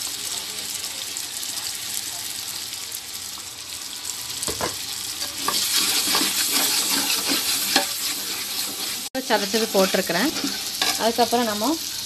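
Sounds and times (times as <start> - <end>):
masala sizzling in oil: 0.0 - 12.0
ladle scraping a pot: 5.2 - 11.0.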